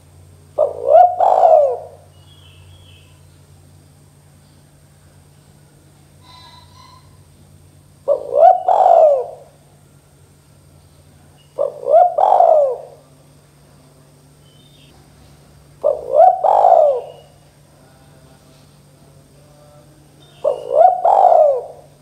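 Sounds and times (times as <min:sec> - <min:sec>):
dove cooing: 0:00.5 - 0:03.2, 0:06.1 - 0:07.3, 0:08.0 - 0:09.7, 0:11.4 - 0:13.2, 0:15.8 - 0:17.4, 0:20.4 - 0:22.0.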